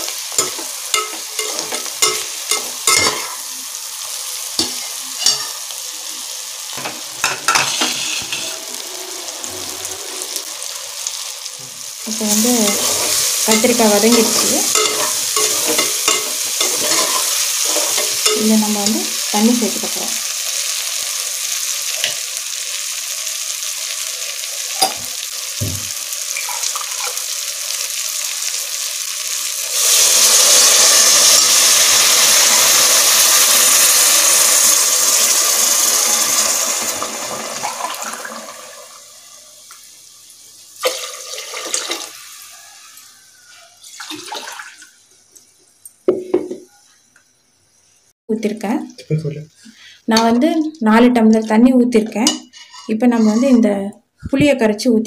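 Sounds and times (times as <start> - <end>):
water hissing in hot pan: 0.0 - 48.1
vegetables sizzling in oil: 0.0 - 48.9
steel ladle knocking and scraping: 12.7 - 18.4.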